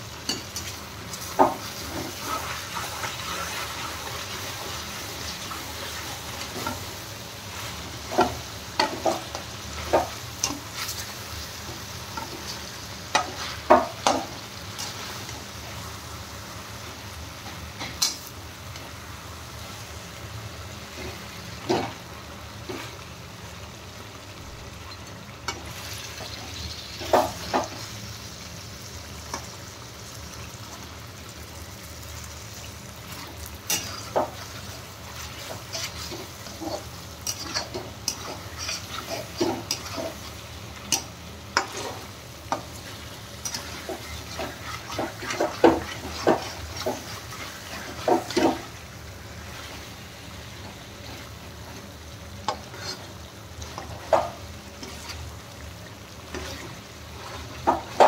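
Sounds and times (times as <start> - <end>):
food sizzling in a pan: 0.0 - 58.0
spatula scraping and knocking pan: 1.2 - 3.7, 7.6 - 11.0, 11.7 - 15.2, 33.7 - 48.7, 52.4 - 55.3, 56.3 - 58.0.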